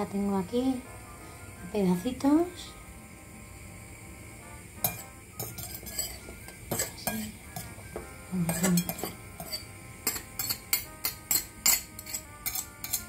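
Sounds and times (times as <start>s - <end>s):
metal utensil scraping ceramic bowl: 4.8s - 7.8s, 8.4s - 13.0s.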